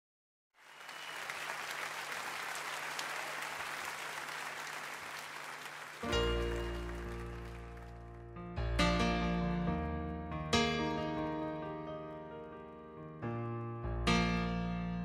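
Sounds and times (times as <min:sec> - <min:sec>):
crowd applause: 0:00.6 - 0:08.3
music with piano-like notes: 0:06.0 - 0:15.0.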